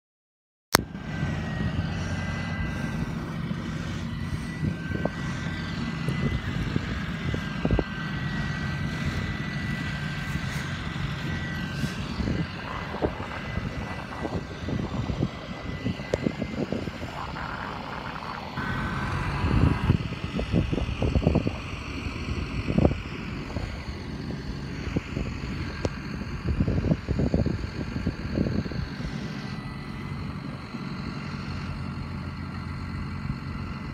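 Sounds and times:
high whine: 0:00.8 - 0:33.9
tractor diesel engine running: 0:00.8 - 0:33.9.

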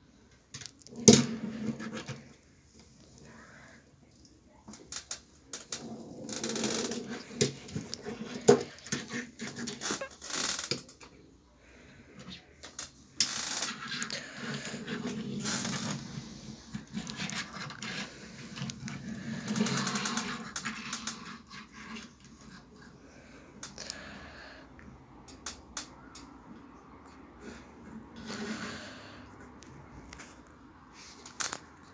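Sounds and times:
toy car wheels rolling rattle: 0:13.2 - 0:22.3
toy cars clicking on wood: 0:19.4 - 0:22.0.

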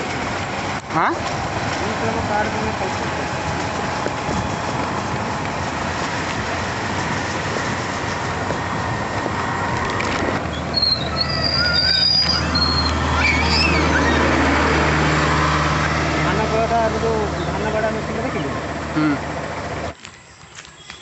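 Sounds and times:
truck engine drone: 0:00.0 - 0:20.4
motorbike wind and road noise: 0:00.0 - 0:21.0
high whistling chirps: 0:10.5 - 0:14.4.

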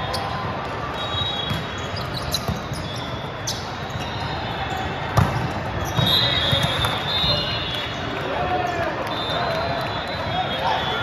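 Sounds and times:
volleyballs thudding and slapping: 0:05.1 - 0:07.0.

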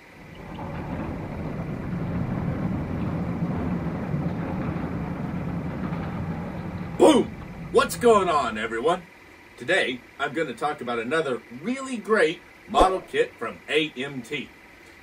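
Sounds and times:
low rumble: 0:00.0 - 0:09.0.

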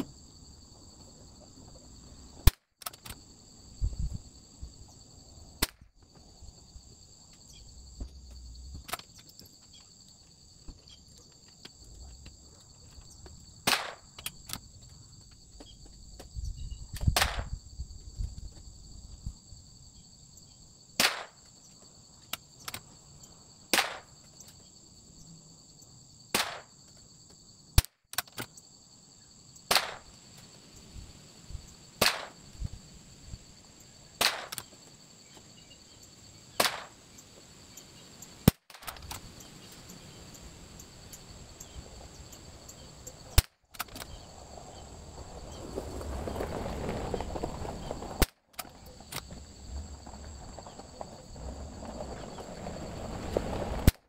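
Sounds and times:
rifle shots: 0:32.0 - 0:32.4, 0:36.6 - 0:37.0.

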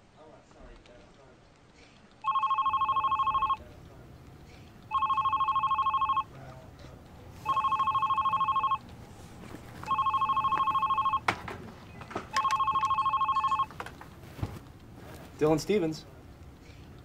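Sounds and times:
desk phone ringing: 0:02.2 - 0:03.6, 0:04.9 - 0:06.4, 0:07.4 - 0:08.9, 0:09.6 - 0:11.3, 0:12.3 - 0:13.8.

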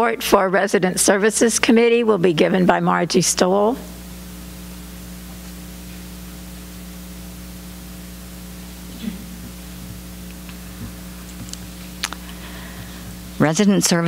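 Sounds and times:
low mains hum: 0:00.0 - 0:14.0
steady hiss: 0:03.8 - 0:14.0.

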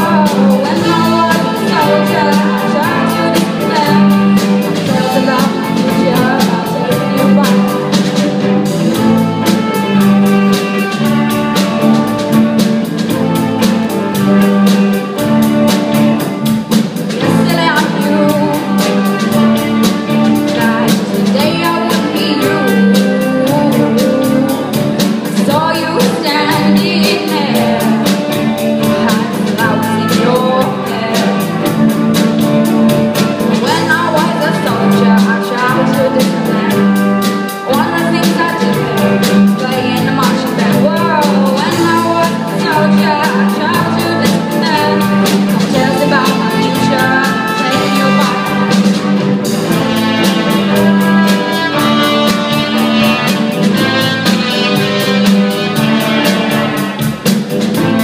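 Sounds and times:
woman singing: 0:00.0 - 0:08.2, 0:17.2 - 0:31.7, 0:33.6 - 0:48.8, 0:50.0 - 0:52.4
bass guitar: 0:00.0 - 0:58.0
drum kit: 0:00.0 - 0:58.0.

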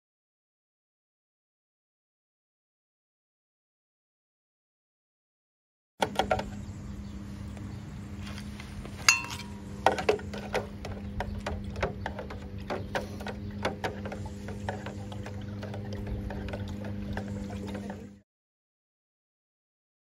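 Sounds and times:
steady low hum: 0:06.0 - 0:18.2
sharp ringing clink: 0:09.1 - 0:09.7.

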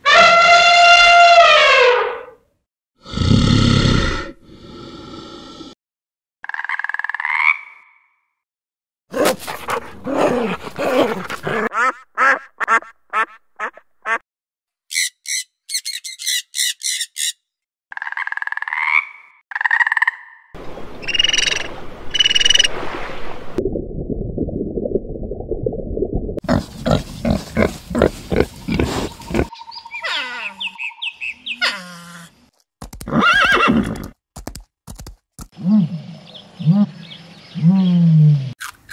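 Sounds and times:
dog barking: 0:09.1 - 0:11.7
horse whinnying: 0:33.0 - 0:34.2.

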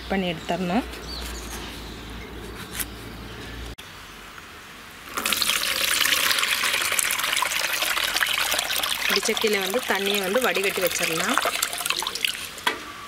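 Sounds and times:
water pouring into a basin: 0:05.1 - 0:12.7.

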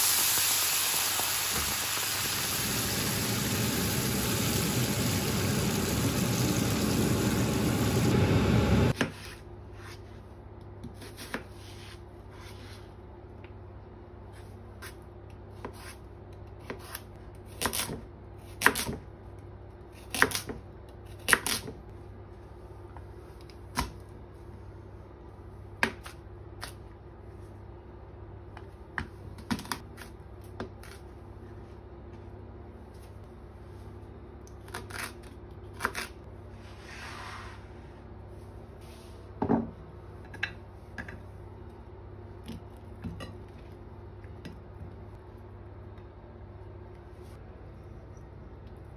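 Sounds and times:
frying pan sizzling: 0:00.0 - 0:09.0.

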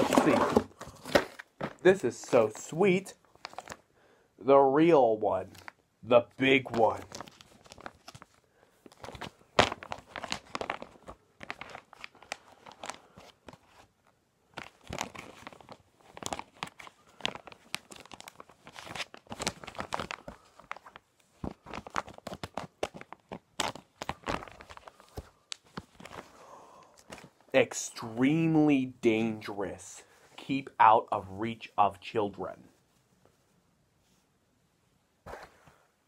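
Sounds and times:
plastic packaging crinkling: 0:03.2 - 0:03.8, 0:06.7 - 0:13.9, 0:14.5 - 0:26.3.

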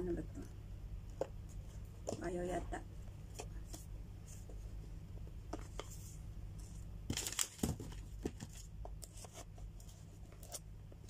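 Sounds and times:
cardboard tearing and crinkling: 0:07.1 - 0:08.0.

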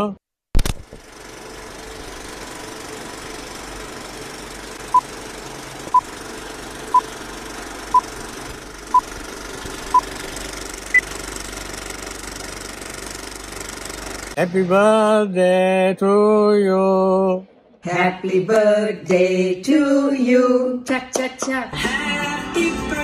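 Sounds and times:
film projector whirring: 0:00.6 - 0:14.5.

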